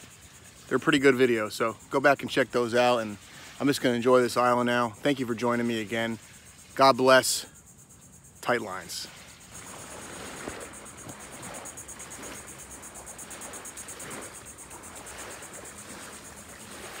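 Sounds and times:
insects trilling: 0:00.0 - 0:17.0
soft outdoor hiss: 0:00.0 - 0:17.0.

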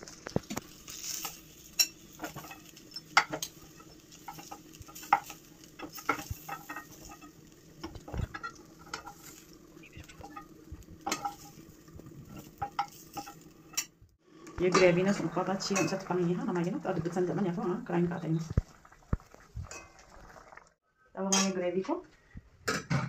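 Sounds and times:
chicken sizzling: 0:00.0 - 0:20.8
metal utensil scraping a pan: 0:00.6 - 0:13.9, 0:14.6 - 0:17.6.

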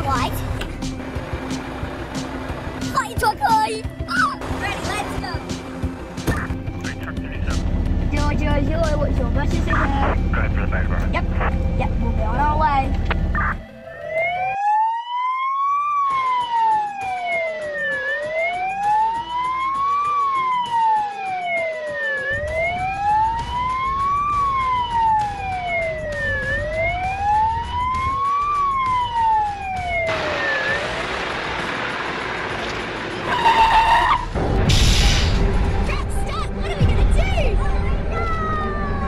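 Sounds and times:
siren wailing: 0:13.3 - 0:31.4, 0:33.2 - 0:34.4, 0:38.0 - 0:39.0.

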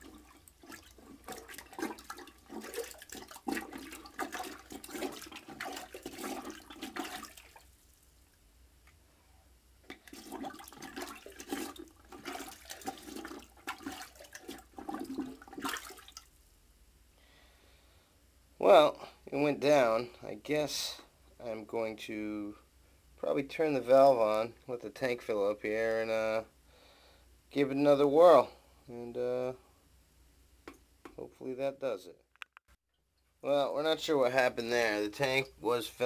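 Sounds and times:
plunger sloshing water in toilet: 0:00.0 - 0:07.9, 0:09.8 - 0:16.3.

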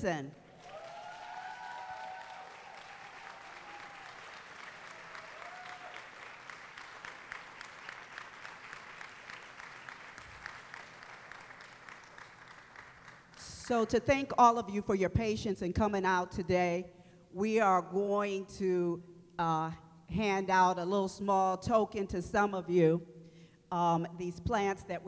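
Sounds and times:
crowd applauding: 0:00.5 - 0:13.4.

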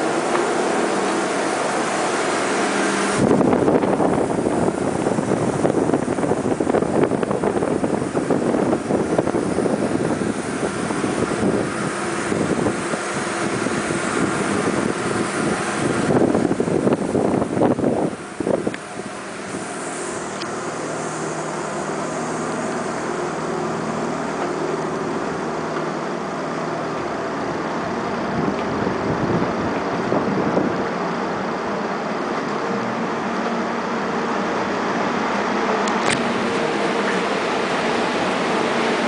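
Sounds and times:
wind on microphone: 0:00.0 - 0:23.1, 0:27.1 - 0:31.6
loud rushing noise: 0:00.0 - 0:39.0
machinery hum with tones: 0:00.0 - 0:39.0.

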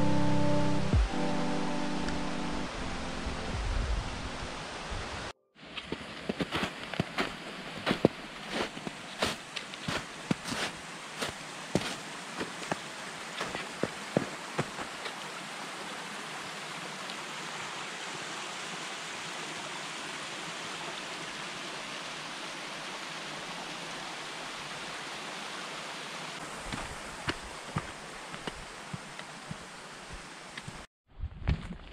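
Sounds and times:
footsteps on snow: 0:05.7 - 0:15.2, 0:26.4 - 0:30.8
creek trickling over rocks: 0:05.8 - 0:30.9.

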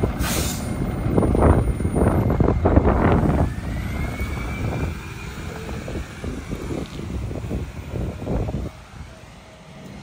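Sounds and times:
garbage truck diesel engine: 0:00.0 - 0:10.0
brief air hiss: 0:00.2 - 0:00.8.

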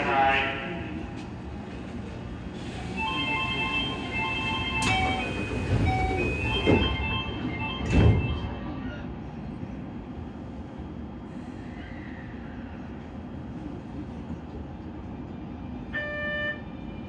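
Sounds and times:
train rumbling: 0:00.0 - 0:17.0.

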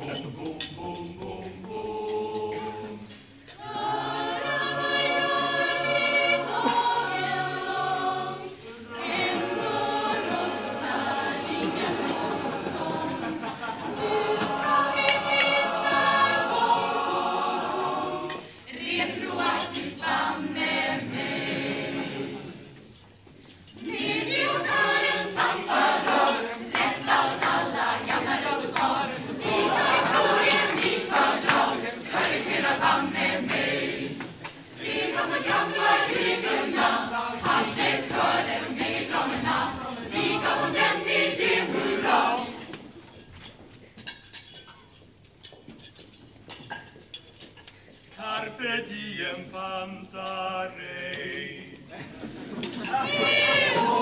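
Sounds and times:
mixed choir singing: 0:00.0 - 0:23.0, 0:23.7 - 0:43.1, 0:48.2 - 0:54.0.

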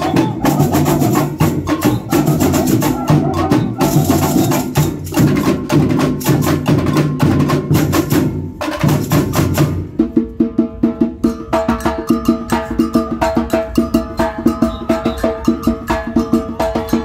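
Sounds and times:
high pitched drum strokes: 0:00.0 - 0:09.4
percussion ensemble drum groove: 0:00.0 - 0:17.0.

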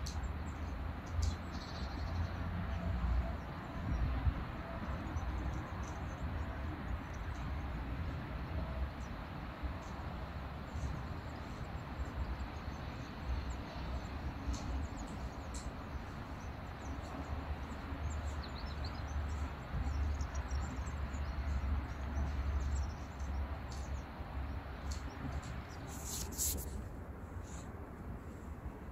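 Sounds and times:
rushing background noise: 0:00.0 - 0:28.9
brief rustle: 0:25.8 - 0:27.7.

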